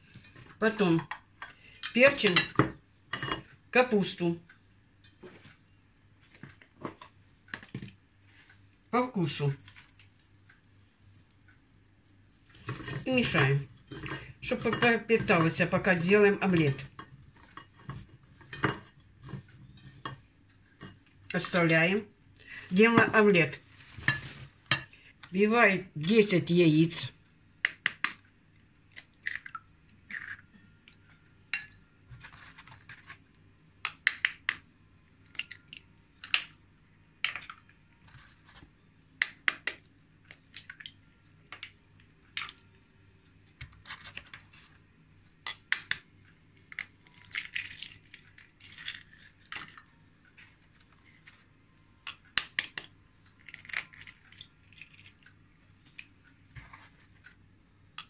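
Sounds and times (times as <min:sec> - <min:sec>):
eggshell cracking: 0:28.9 - 0:30.5, 0:33.8 - 0:34.6, 0:45.4 - 0:46.0, 0:46.7 - 0:49.8, 0:52.1 - 0:55.3.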